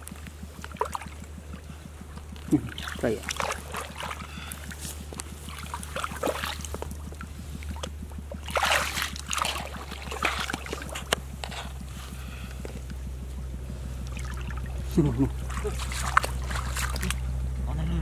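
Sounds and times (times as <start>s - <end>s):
steady low hum: 0.0s - 18.0s
hands splashing in muddy water: 2.2s - 12.9s, 14.0s - 17.3s.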